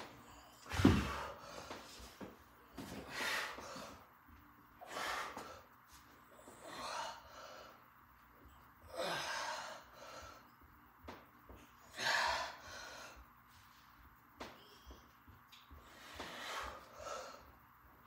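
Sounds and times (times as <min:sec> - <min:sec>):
man breathing hard: 0:02.9 - 0:04.1, 0:04.8 - 0:05.8, 0:08.9 - 0:10.6, 0:11.9 - 0:13.3, 0:15.8 - 0:17.6.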